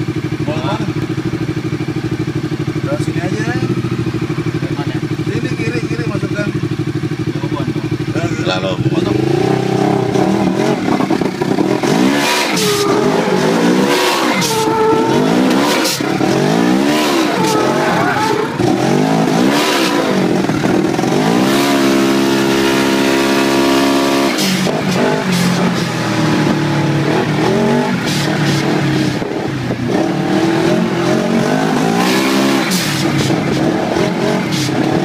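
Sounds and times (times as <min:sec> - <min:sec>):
engine accelerating hard: 0:07.3 - 0:35.0.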